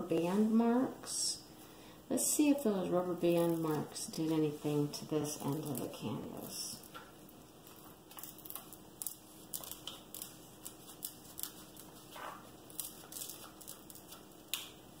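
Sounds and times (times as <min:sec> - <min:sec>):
release sheet crinkling: 0:03.2 - 0:15.0.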